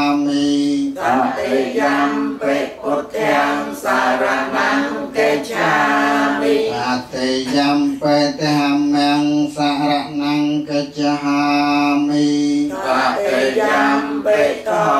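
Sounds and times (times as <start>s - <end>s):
group chanting in unison: 0.0s - 8.4s, 11.8s - 14.9s.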